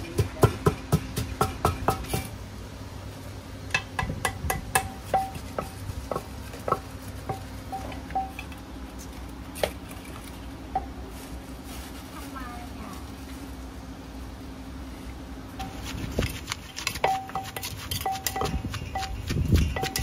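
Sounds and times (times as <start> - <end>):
wooden pestle pounding in mortar: 0.0 - 2.3, 3.8 - 8.3, 15.6 - 20.0.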